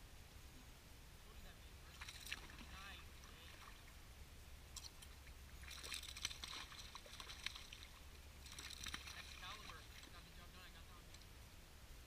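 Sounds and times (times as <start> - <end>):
fish splashing in water: 2.0 - 2.7, 5.6 - 10.2.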